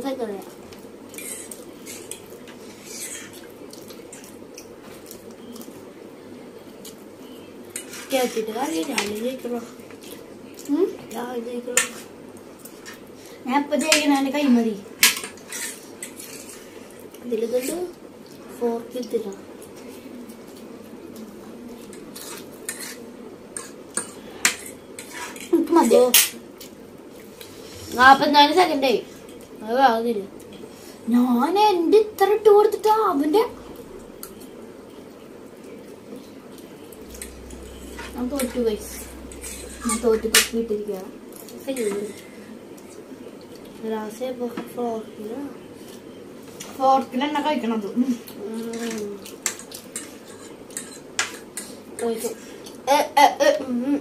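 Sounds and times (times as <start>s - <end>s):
background hum: 0.0s - 54.0s
forks scraping on plates: 1.1s - 3.4s, 7.7s - 9.1s, 15.0s - 16.7s, 21.9s - 26.4s, 37.1s - 40.6s, 41.4s - 43.0s, 48.7s - 51.8s.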